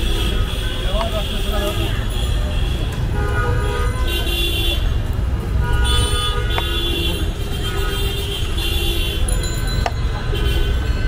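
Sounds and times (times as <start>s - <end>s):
low traffic rumble: 0.0s - 11.0s
vehicle horns honking: 5.6s - 11.0s.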